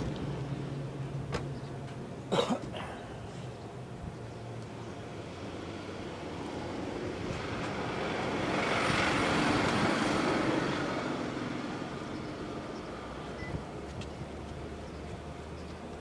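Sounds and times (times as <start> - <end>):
vehicle passing by: 4.9 - 15.6.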